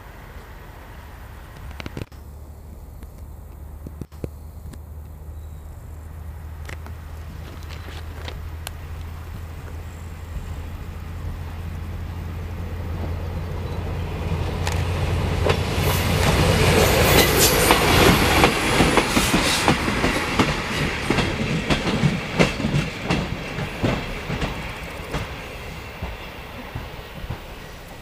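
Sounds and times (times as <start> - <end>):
low diesel drone: 0.0 - 28.0
wheels clicking over rail joints: 6.5 - 28.0.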